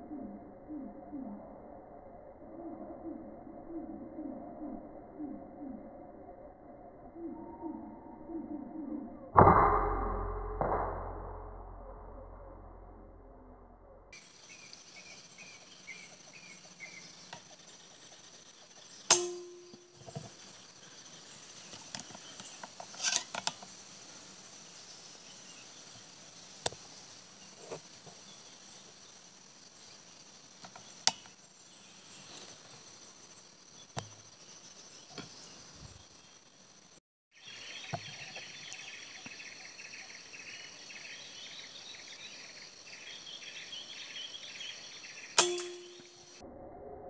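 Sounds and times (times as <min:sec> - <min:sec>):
air rifle shot: 0:45.4 - 0:46.1.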